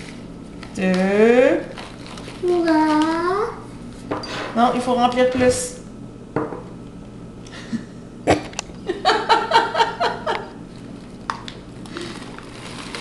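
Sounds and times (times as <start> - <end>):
person laughing: 7.5 - 10.6.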